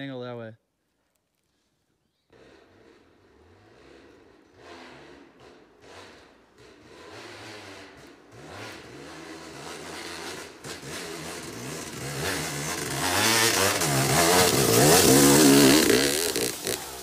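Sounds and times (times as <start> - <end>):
dirt bike engine revving: 2.3 - 17.0.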